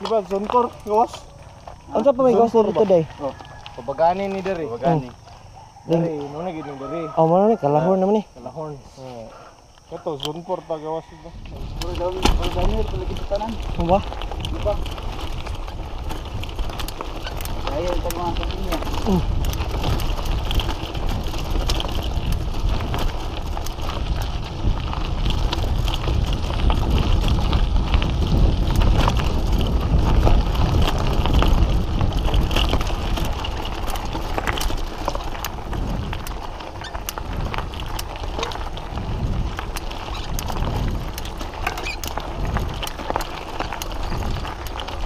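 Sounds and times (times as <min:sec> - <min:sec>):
bike rattling over bumps: 0:00.0 - 0:08.8, 0:09.6 - 0:45.0
tyres crunching over gravel: 0:00.0 - 0:45.0
wind rush on microphone: 0:11.0 - 0:45.0.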